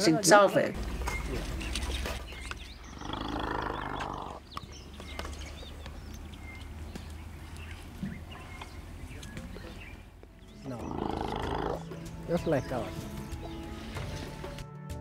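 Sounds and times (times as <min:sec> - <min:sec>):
elephant calf bellowing: 0:00.8 - 0:05.6, 0:06.2 - 0:12.2.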